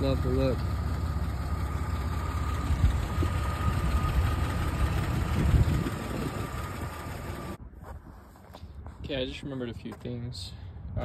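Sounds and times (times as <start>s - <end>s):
car engine idling: 0.0s - 7.6s.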